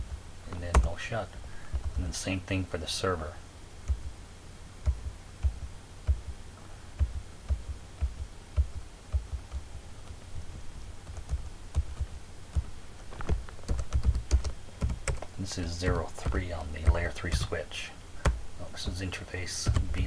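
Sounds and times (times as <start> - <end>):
computer keyboard typing: 11.0 - 15.3, 15.9 - 17.6, 19.6 - 20.0.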